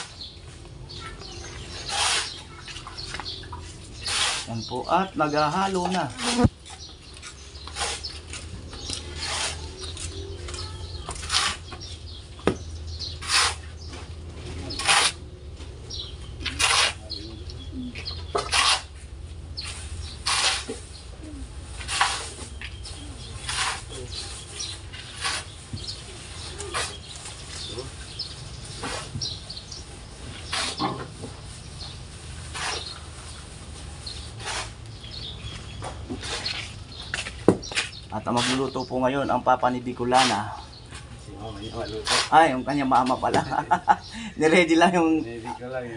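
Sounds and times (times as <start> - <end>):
small birds chirping: 0.0 - 45.9
shovel scraping sand: 1.6 - 6.5, 7.3 - 10.2, 11.1 - 11.9, 13.0 - 13.9, 14.5 - 15.2, 16.4 - 17.2, 18.4 - 19.0, 19.6 - 21.0, 21.8 - 22.6, 23.3 - 31.1, 32.5 - 33.3, 34.0 - 35.3, 36.1 - 36.8, 37.8 - 38.8, 40.1 - 40.6, 41.9 - 43.0
shovel scraping into sand: 1.8 - 2.4, 4.0 - 4.7, 9.0 - 9.8, 13.2 - 13.7, 14.6 - 15.2, 16.5 - 17.2, 18.4 - 18.9, 19.6 - 20.9, 21.8 - 22.6, 23.4 - 25.6, 26.6 - 27.1, 28.7 - 29.4, 30.4 - 31.0, 32.5 - 33.0, 34.1 - 34.8, 36.2 - 36.7, 38.3 - 38.8, 42.0 - 42.4.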